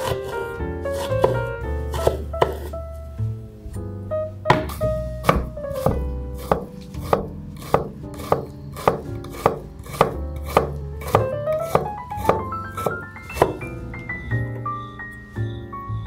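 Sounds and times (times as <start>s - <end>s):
knife chopping on wooden board: 0.0s - 0.4s, 1.0s - 2.7s, 4.5s - 13.6s
soft background music: 0.0s - 16.0s.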